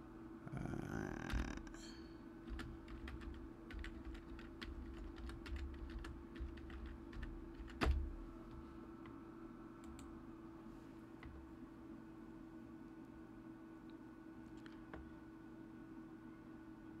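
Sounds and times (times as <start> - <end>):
typing on a keyboard: 2.4 - 8.1.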